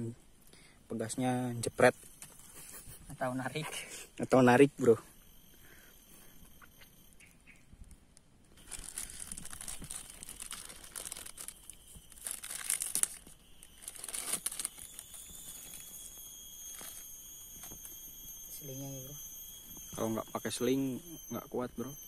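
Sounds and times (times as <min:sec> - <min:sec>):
plastic bag crinkling: 0:08.6 - 0:17.9.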